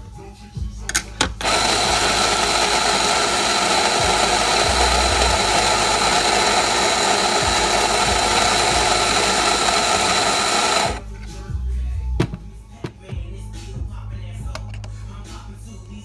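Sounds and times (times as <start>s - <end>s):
coffee grinder grinding beans: 1.2s - 11.0s.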